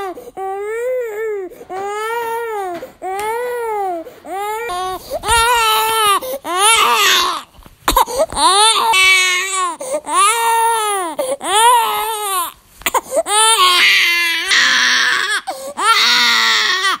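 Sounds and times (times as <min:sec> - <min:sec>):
infant crying: 0:00.0 - 0:17.0.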